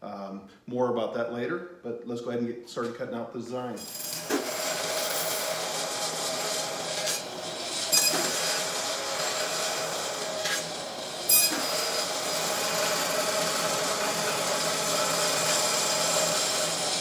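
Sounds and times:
bandsaw cutting wood: 3.8s - 17.0s.

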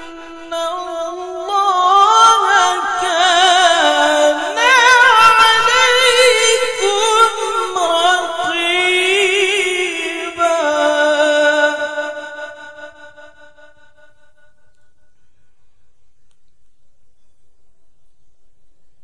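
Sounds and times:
man reciting melodiously: 0.0s - 13.9s.

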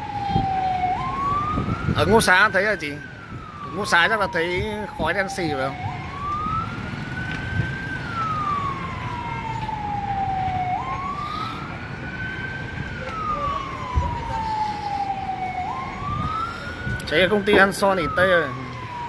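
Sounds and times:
emergency siren wailing: 0.0s - 19.0s.

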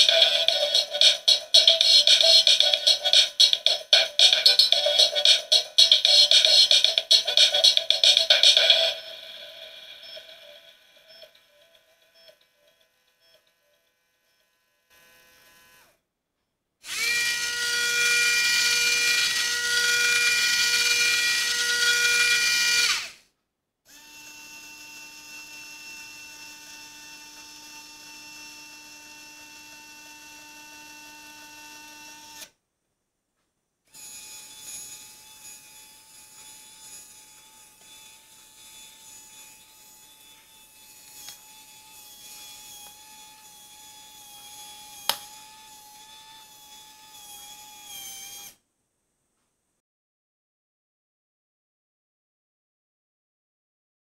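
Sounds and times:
small electric motors whirring: 11.2s - 16.0s, 16.8s - 23.2s, 23.9s - 32.6s, 33.9s - 48.6s.

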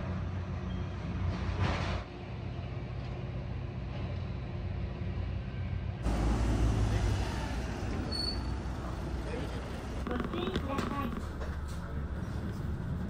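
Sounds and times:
bus engine rumble: 0.0s - 13.0s
high squeal: 8.0s - 8.6s.

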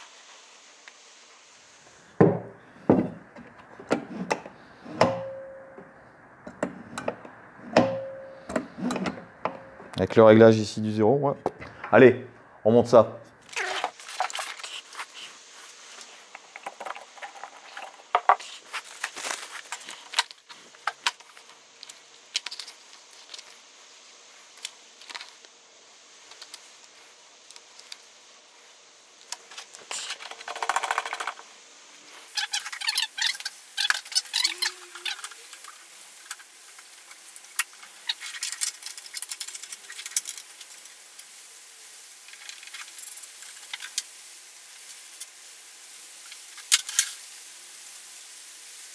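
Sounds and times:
rustling scrape: 13.6s - 16.4s, 17.2s - 25.4s
clicks and rattles of parts: 29.3s - 31.5s, 37.5s - 40.8s.

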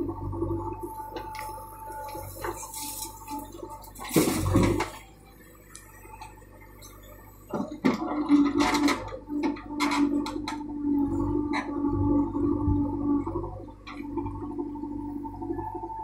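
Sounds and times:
diesel engine and hydraulics: 0.0s - 16.0s
soil and stones dumped: 1.9s - 5.1s.

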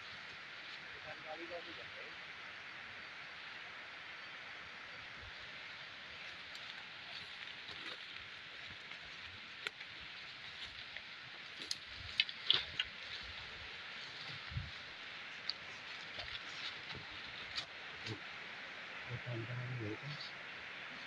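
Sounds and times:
forest ambience hiss: 0.0s - 21.0s
twigs snapping: 10.6s - 13.3s.

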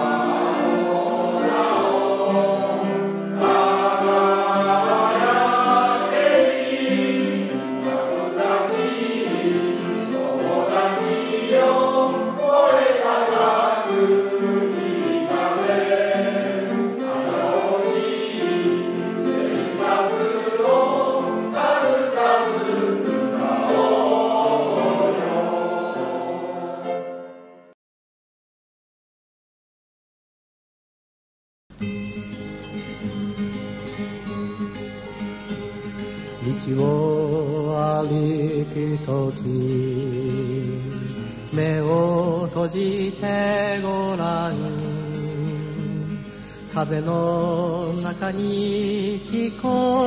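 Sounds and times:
choir singing: 0.0s - 27.7s.

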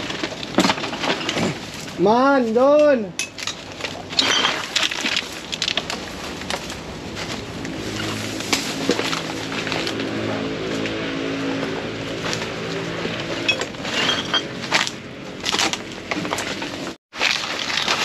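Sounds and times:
engine running: 5.4s - 17.0s
rustling: 13.3s - 18.0s.

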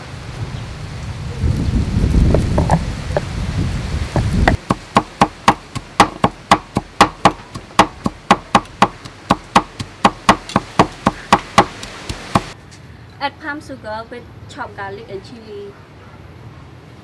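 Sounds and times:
knives chopping on wooden block: 4.5s - 12.6s.

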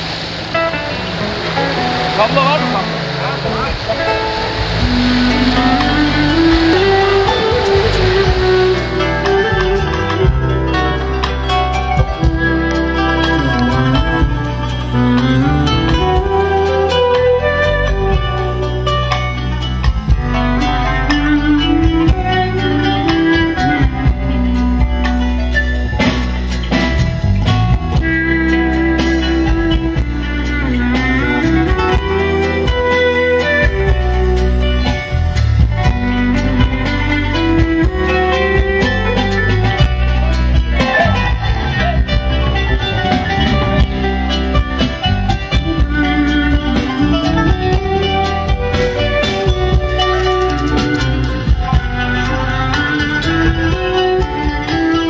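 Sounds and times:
bass guitar: 0.0s - 55.0s
drum kit: 0.0s - 55.0s
guitar: 0.0s - 55.0s
plucked kanun: 0.6s - 55.0s
clarinet melody gliding in pitch: 2.2s - 19.6s, 35.9s - 55.0s.

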